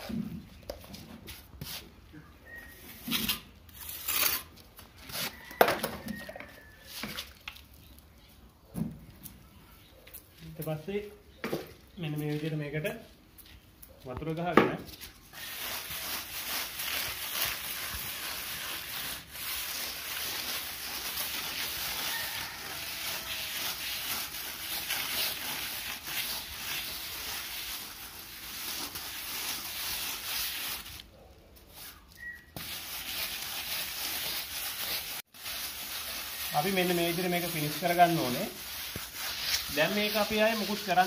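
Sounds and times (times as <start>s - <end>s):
hand float scraping plaster: 15.4s - 31.0s, 31.7s - 41.0s.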